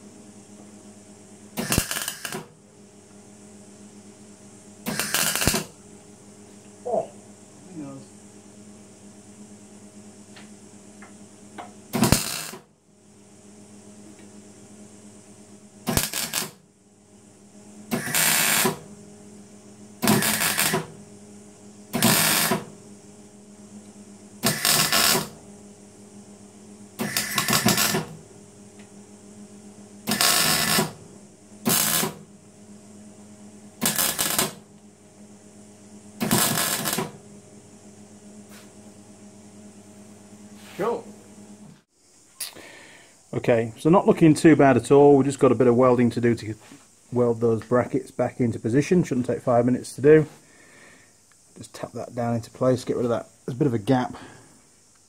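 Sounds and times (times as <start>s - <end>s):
steady hum: 0.0s - 55.0s
welding arc bursts: 1.5s - 2.6s, 4.8s - 5.8s, 11.9s - 12.7s, 15.8s - 16.6s, 17.9s - 18.8s, 20.0s - 21.0s, 21.9s - 22.8s, 24.4s - 25.4s, 27.0s - 28.2s, 30.0s - 31.0s, 31.6s - 32.3s, 33.8s - 34.7s, 36.2s - 37.2s.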